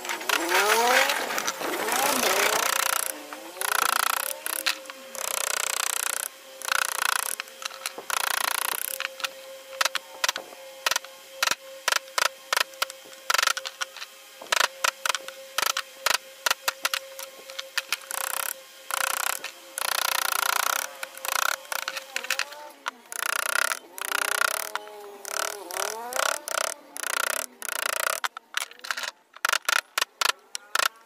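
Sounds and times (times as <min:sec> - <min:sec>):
faint steady hum: 0:00.0 - 0:31.0.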